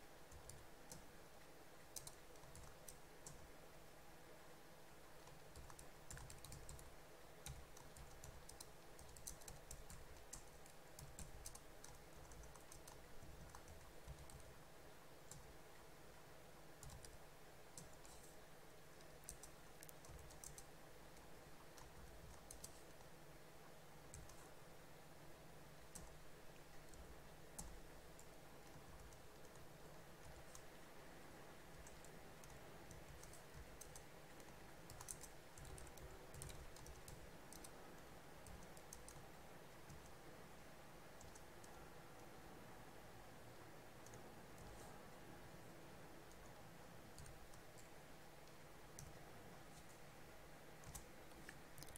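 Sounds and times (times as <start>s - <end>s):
low steady hum: 0.0s - 51.9s
keyboard typing: 0.3s - 1.1s, 1.9s - 3.4s, 5.2s - 14.6s, 15.2s - 15.5s, 16.8s - 23.2s, 24.1s - 24.5s, 25.8s - 30.8s, 31.7s - 40.2s, 41.2s - 42.4s, 44.0s - 45.0s, 46.2s - 50.0s, 50.8s - 51.9s.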